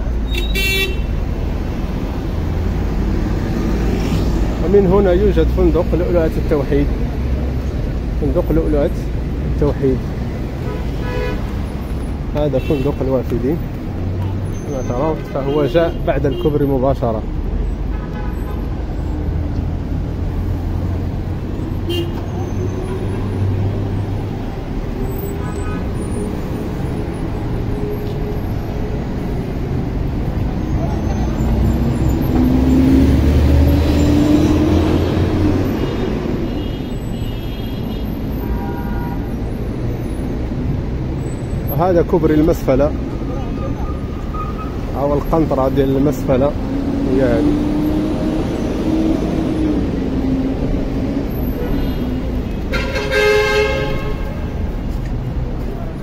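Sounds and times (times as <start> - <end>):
street traffic rumble: 0.0 - 56.0.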